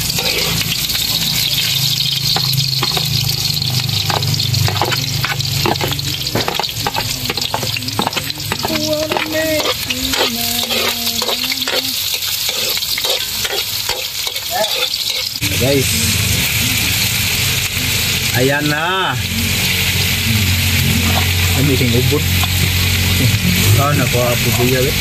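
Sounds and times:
metal ladle scraping wok: 0:00.0 - 0:15.9, 0:19.6 - 0:23.2
aromatics sizzling in oil: 0:00.0 - 0:25.0.

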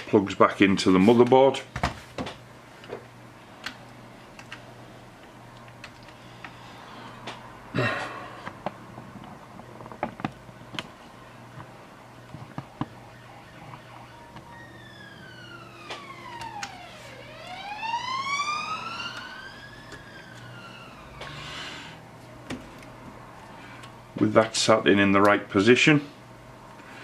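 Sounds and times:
emergency siren wailing: 0:10.1 - 0:22.2.

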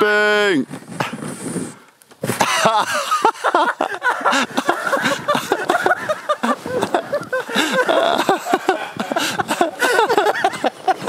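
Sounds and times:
people laughing: 0:02.4 - 0:11.0.

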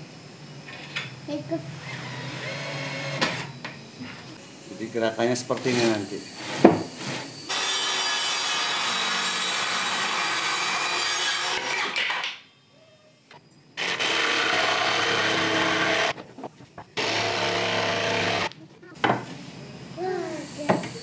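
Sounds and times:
jigsaw cutting wood: 0:13.8 - 0:16.2, 0:17.0 - 0:18.5.

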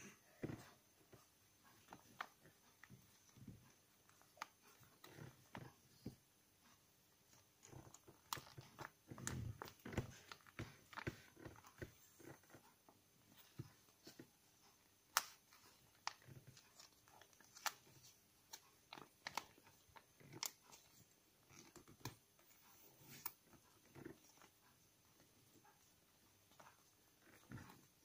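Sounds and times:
paper crinkling as it is folded: 0:15.2 - 0:24.5.

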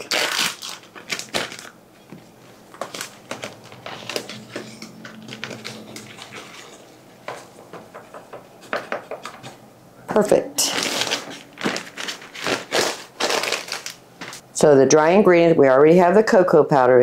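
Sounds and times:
plastic bag crinkling: 0:00.0 - 0:06.9, 0:10.6 - 0:14.4.

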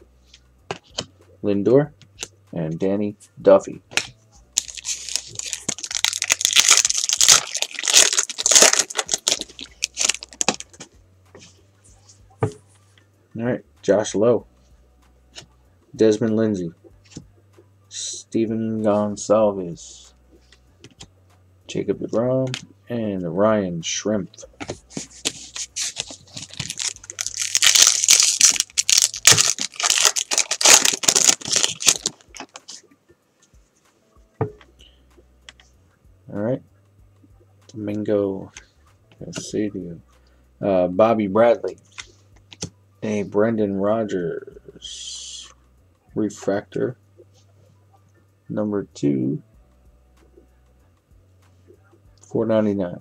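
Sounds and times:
foil wrapper tearing and crinkling: 0:04.6 - 0:10.7, 0:25.2 - 0:32.7.

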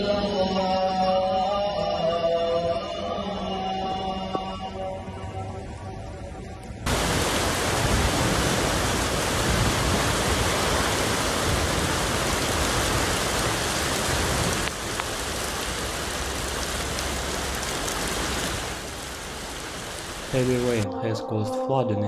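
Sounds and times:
heavy rain: 0:06.8 - 0:20.8
rushing floodwater: 0:06.8 - 0:20.8.

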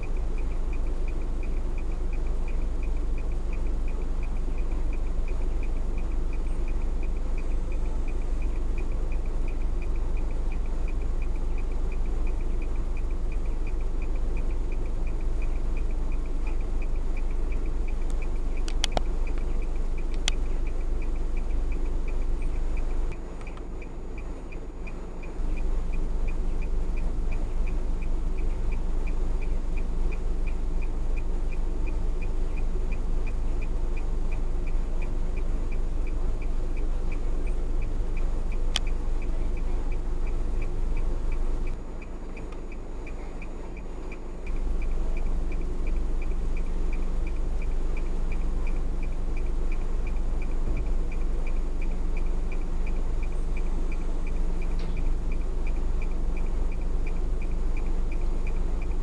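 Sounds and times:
car interior low rumble: 0:00.0 - 0:59.0
regular light ticking: 0:00.0 - 0:59.0
sharp click: 0:18.0 - 0:20.5, 0:38.7 - 0:39.0.

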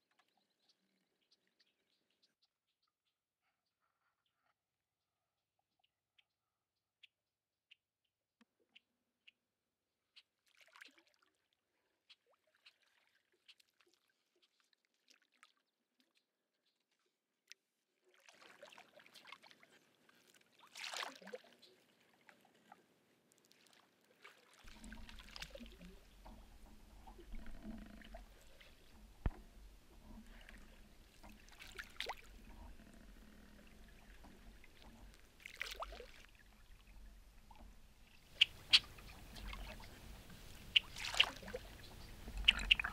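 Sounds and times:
water swirls and drips: 0:10.3 - 0:42.9
canoe paddle pulling through water: 0:24.1 - 0:42.9.

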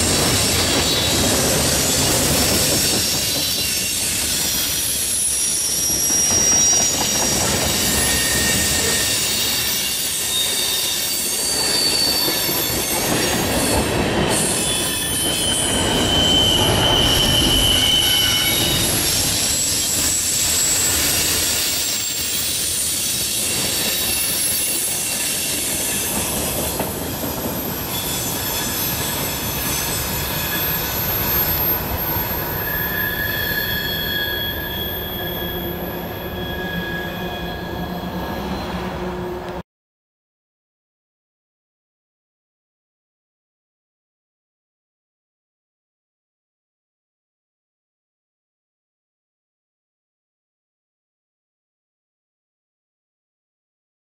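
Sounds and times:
train wheels rumbling on rail: 0:00.0 - 0:39.6
high-pitched wheel squeals: 0:00.2 - 0:39.5.

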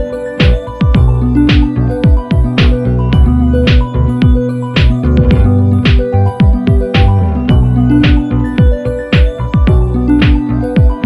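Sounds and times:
deep kick drum: 0:00.0 - 0:11.0
electronic music with beat: 0:00.0 - 0:11.0
sustained synth tones: 0:02.9 - 0:08.6.

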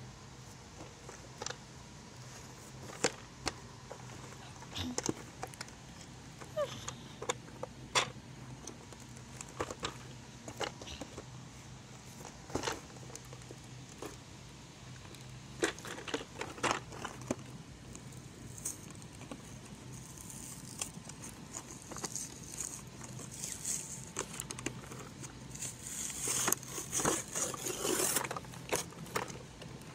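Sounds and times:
plastic packaging crinkling: 0:18.0 - 0:29.9.

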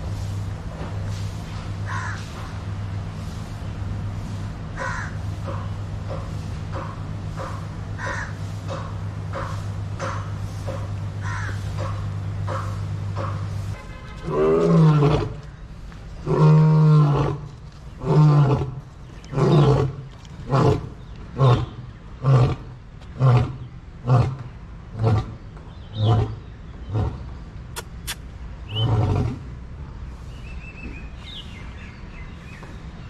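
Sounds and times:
steady low hum: 0:00.0 - 0:33.0
big cat roaring: 0:14.2 - 0:15.5, 0:16.2 - 0:25.4, 0:28.7 - 0:29.5.

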